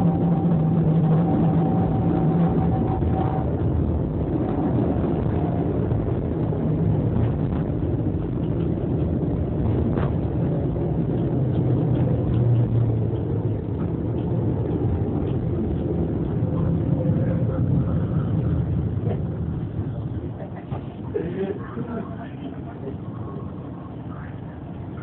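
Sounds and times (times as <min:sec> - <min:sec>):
tram wheels rumbling on tracks: 0:00.0 - 0:25.0.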